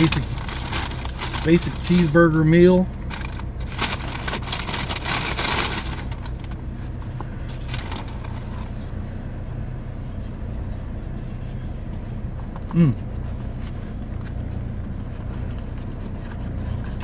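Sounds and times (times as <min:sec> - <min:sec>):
paper bag rustling: 0:00.0 - 0:06.6, 0:07.5 - 0:08.9
car engine idling: 0:00.0 - 0:17.0.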